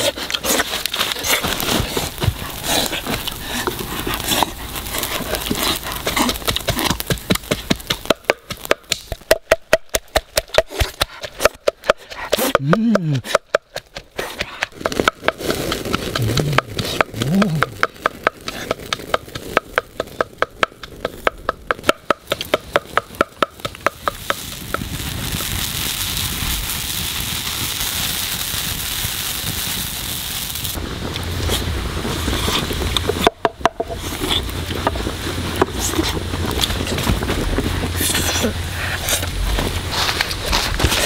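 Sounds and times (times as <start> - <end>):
boiling pot hissing: 0.0 - 9.2, 22.2 - 41.0
wood fire crackling: 0.0 - 41.0.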